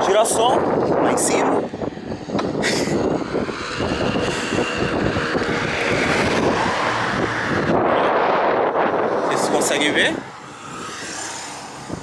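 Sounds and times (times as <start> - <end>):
road traffic noise: 0.0 - 12.0
wind rumbling on microphone: 0.0 - 12.0
car passing: 1.5 - 12.0.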